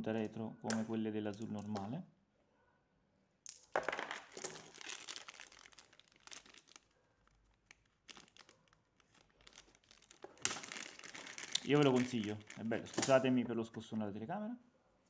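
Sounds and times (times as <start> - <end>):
plastic bag crinkling: 3.8 - 13.3.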